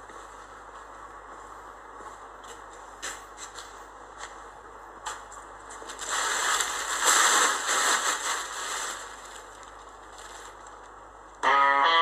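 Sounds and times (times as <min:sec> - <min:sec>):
plastic tarpaulin rustling: 0:05.1 - 0:11.3.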